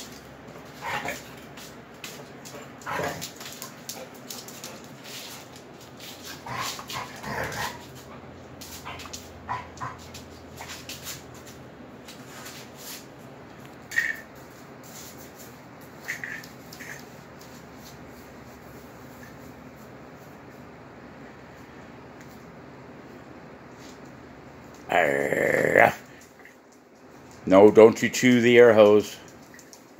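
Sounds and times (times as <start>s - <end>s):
dogs scuffling: 0.0s - 20.8s, 26.0s - 29.9s
dog vocal noises: 0.6s - 1.5s, 2.5s - 5.5s, 6.2s - 11.2s.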